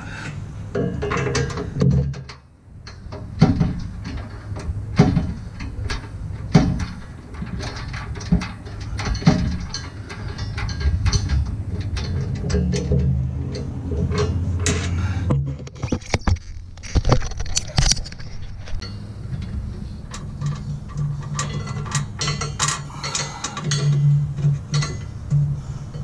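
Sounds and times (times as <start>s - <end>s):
small metallic clicks: 15.6s - 26.0s.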